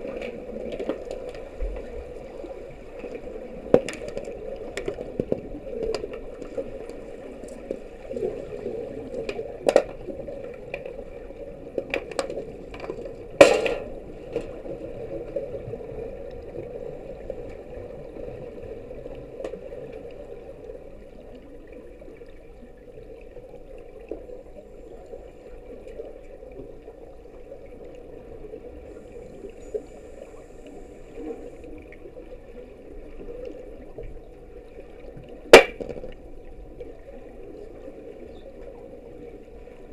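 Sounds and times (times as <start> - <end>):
underwater background noise: 0.0 - 39.9.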